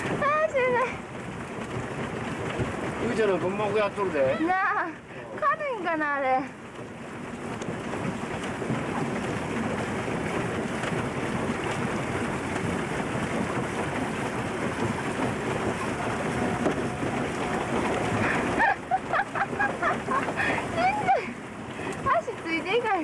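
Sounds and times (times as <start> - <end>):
rushing water: 0.0 - 23.0
voices: 20.5 - 23.0.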